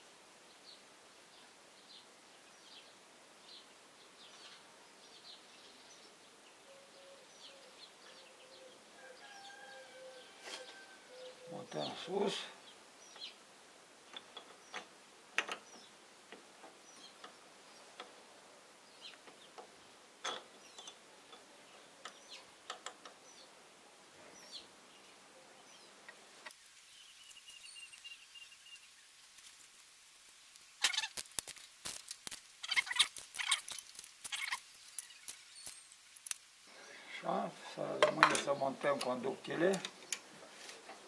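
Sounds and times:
faint bird calls: 6.6 - 13.4.

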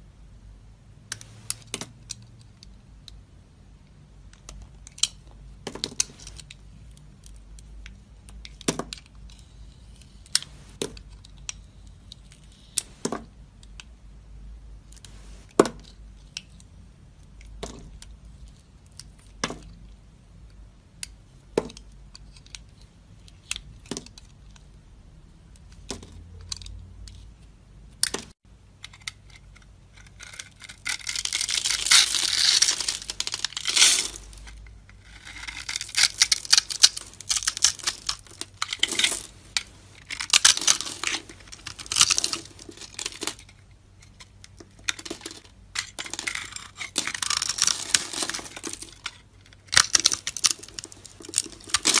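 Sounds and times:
soap crunching and crackling: 29.2 - 43.5, 44.3 - 52.0.

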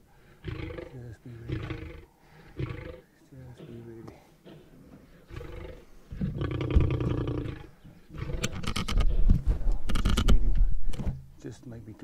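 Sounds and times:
lion growling: 0.4 - 9.3.

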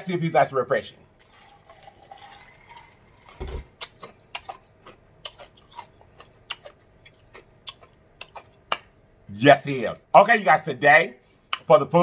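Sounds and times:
lip smacks and mouth clicks: 3.8 - 8.9, 11.5 - 11.7.

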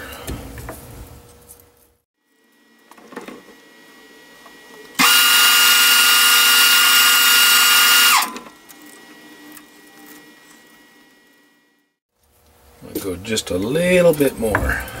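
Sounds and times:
metal lathe whining: 5.0 - 8.9.

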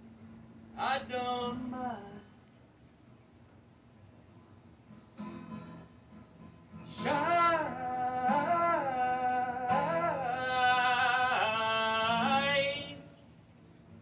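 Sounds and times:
man singing: 0.8 - 2.3, 6.8 - 13.2
strummed acoustic guitar: 4.3 - 14.0.

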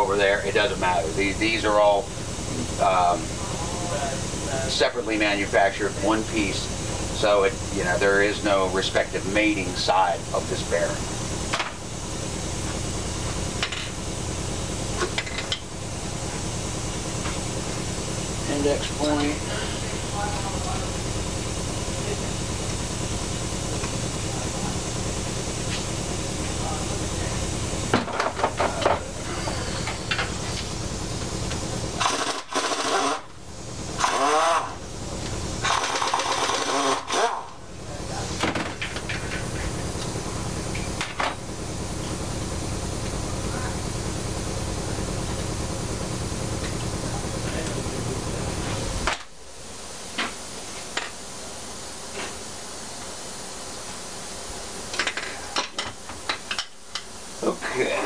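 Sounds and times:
low shop hum: 0.0 - 58.0
air ratchet whining: 28.2 - 37.6.

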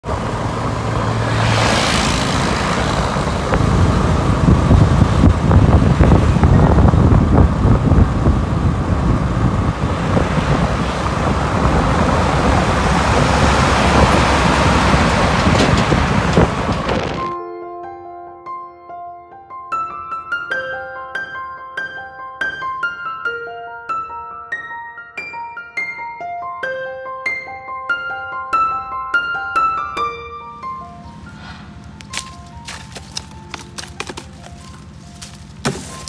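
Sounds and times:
heavy low rumble: 0.0 - 17.3, 30.8 - 35.6
highway traffic passing: 0.0 - 17.4, 30.4 - 36.0.

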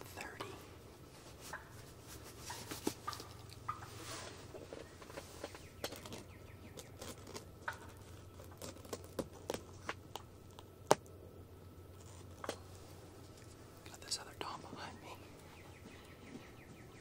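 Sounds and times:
faint rustling of gear: 0.0 - 10.6.

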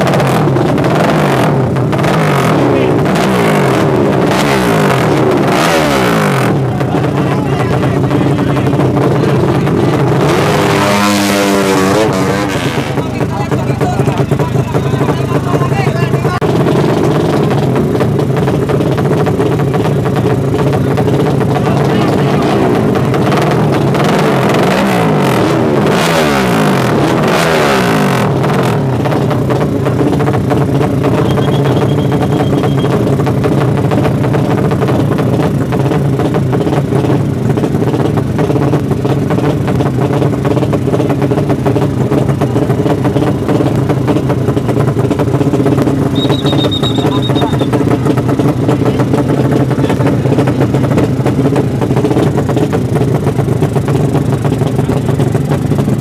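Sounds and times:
motorcycle engine revving and idling: 0.0 - 56.0.

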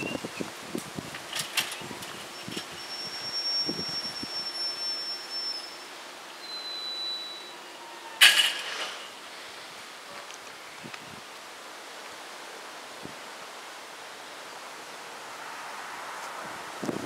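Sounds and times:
loud metallic clank: 8.2 - 9.2.

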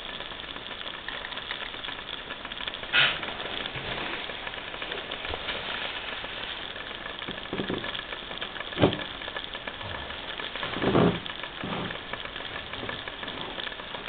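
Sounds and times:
water hissing and crackling heating: 0.0 - 14.0.

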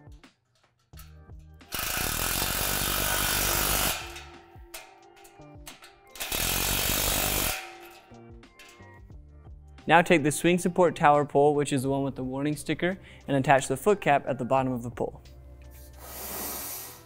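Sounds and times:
background music: 0.0 - 17.0
cordless drill running: 1.7 - 4.2, 6.2 - 7.6.

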